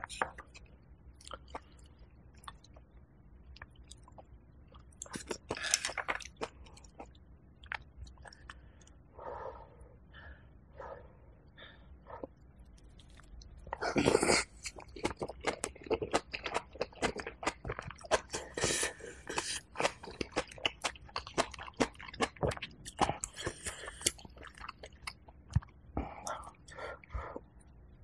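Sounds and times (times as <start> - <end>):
crunchy chewing: 12.1 - 26.7.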